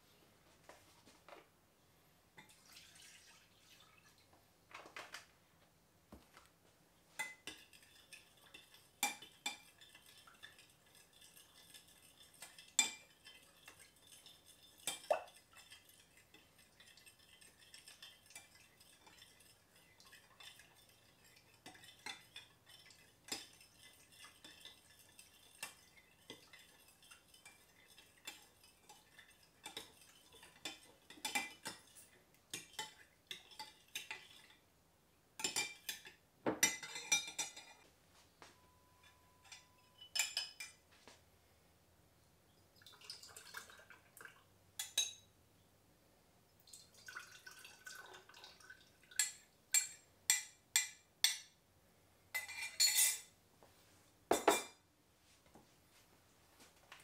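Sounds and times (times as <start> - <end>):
liquid pouring into glass cup: 2.4 - 4.2, 42.8 - 44.9, 46.6 - 49.9.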